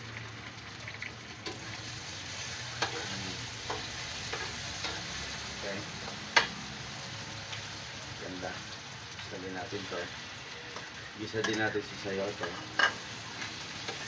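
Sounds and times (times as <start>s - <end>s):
pork sizzling in oil: 0.0s - 14.0s
spatula scraping and knocking pan: 2.8s - 3.1s, 3.7s - 5.1s.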